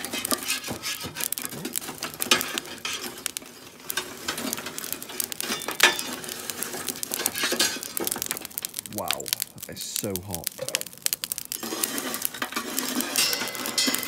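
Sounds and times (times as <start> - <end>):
metal tool scraping grill basket: 0.0 - 8.2, 11.5 - 14.0
charcoal lumps rattling and dropping: 0.0 - 14.0.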